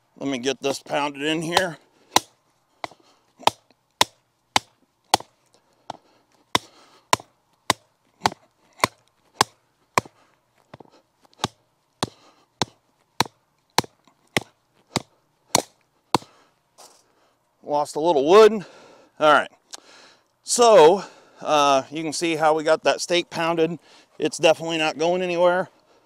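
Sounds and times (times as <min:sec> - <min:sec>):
hammer striking wooden stake: 0:01.3 - 0:16.4.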